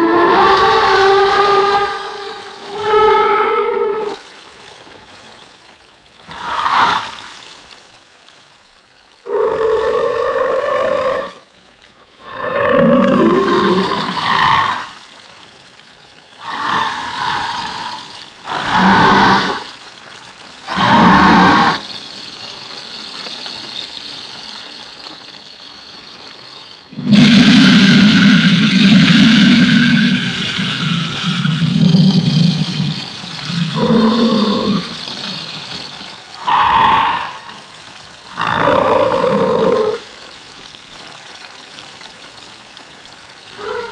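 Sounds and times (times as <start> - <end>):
alligator roars: 0.0 - 4.2, 9.3 - 11.4, 12.2 - 15.0, 16.4 - 19.7, 20.6 - 21.9, 26.9 - 40.1, 43.5 - 43.9.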